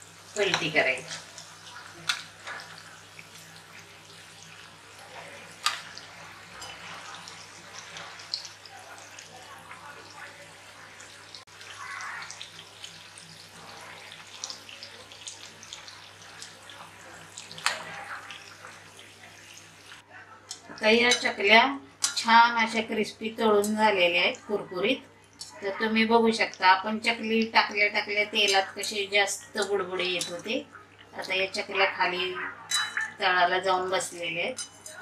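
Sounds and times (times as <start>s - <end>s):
deep-frying sizzling in oil: 0.0s - 20.1s, 25.3s - 35.0s
metal spatula clinking on pan: 32.7s - 33.2s, 34.5s - 35.0s.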